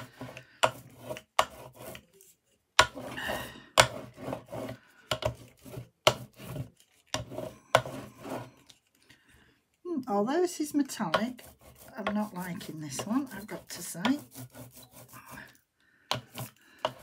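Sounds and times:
brayer rolling through wet paint: 0.0 - 8.9, 10.8 - 15.6.

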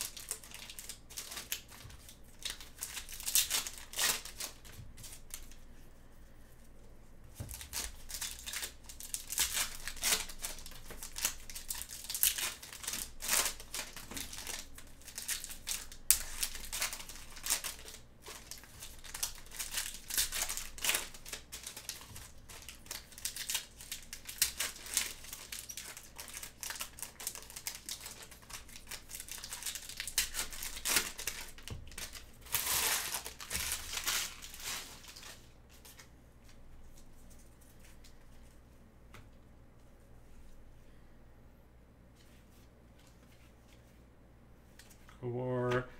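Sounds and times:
foil packs crinkling and tearing: 0.0 - 5.6, 7.4 - 36.0.

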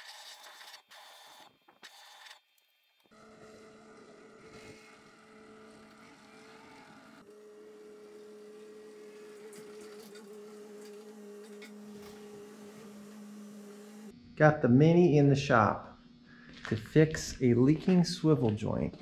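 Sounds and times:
mini excavator engine hum: 3.1 - 14.1.

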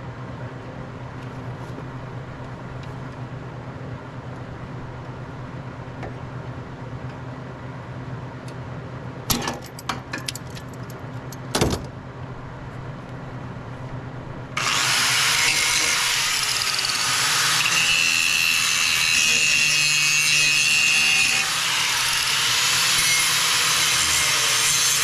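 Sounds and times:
angle grinder grinding steel: 14.6 - 25.0.

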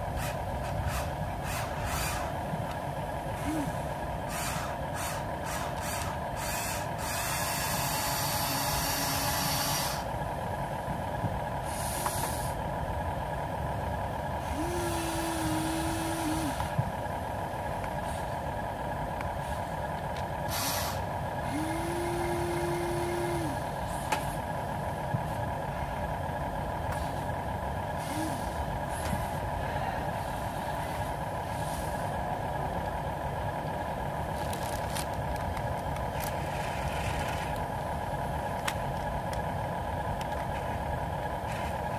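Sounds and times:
steady whine: 0.0 - 41.9
toy motors whirring: 0.2 - 2.4, 4.3 - 10.1, 14.4 - 16.7, 20.5 - 23.5, 28.0 - 29.0, 34.3 - 37.6.

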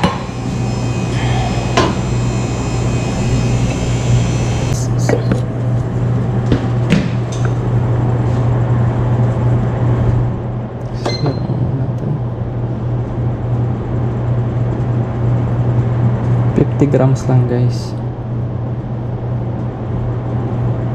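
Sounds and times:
low machine hum: 0.0 - 20.9.

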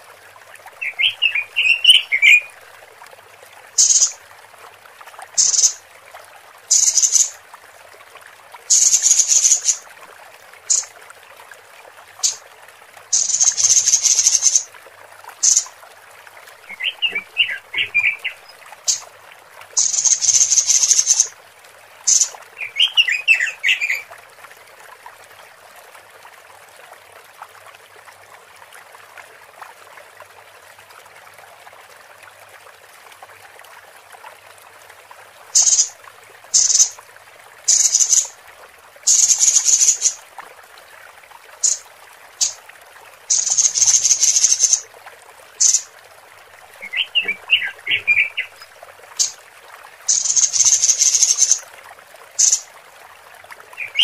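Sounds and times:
faint background hiss: 0.0 - 54.0
high bird chirps: 3.8 - 4.2, 5.4 - 5.8, 6.7 - 7.3, 8.7 - 9.8, 13.2 - 14.6, 15.4 - 15.7, 19.8 - 21.3, 22.1 - 24.0, 35.6 - 35.9, 36.6 - 36.9, 37.7 - 38.3, 39.1 - 40.2, 43.3 - 44.8, 45.6 - 45.8, 50.1 - 51.6, 52.4 - 52.6.

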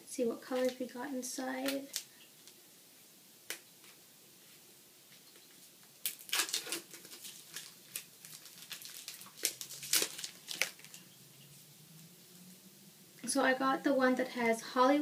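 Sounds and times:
scratchy packaging rustles: 5.5 - 11.1
plastic packaging clicks: 6.0 - 11.0.

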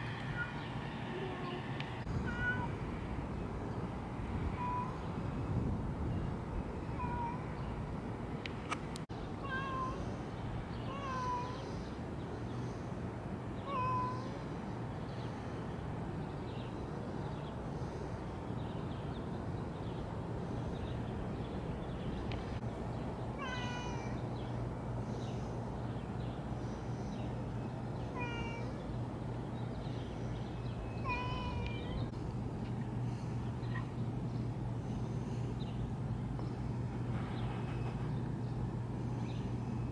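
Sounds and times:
low background hum: 0.0 - 39.9
cat meowing: 2.2 - 2.7, 28.2 - 28.8.

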